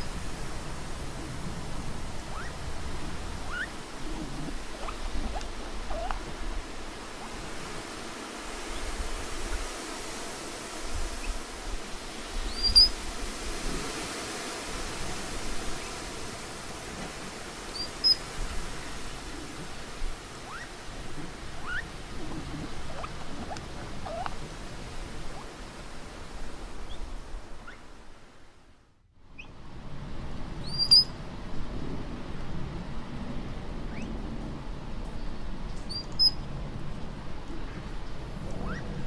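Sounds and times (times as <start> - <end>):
background hiss: 0.0 - 39.0
quick rising squeaks: 12.5 - 13.0.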